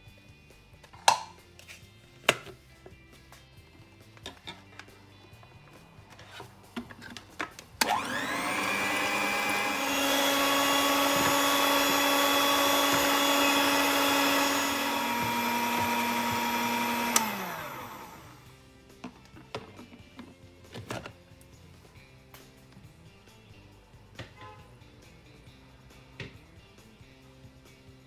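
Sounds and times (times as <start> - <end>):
hand mixer motor whining: 7.8 - 18.5.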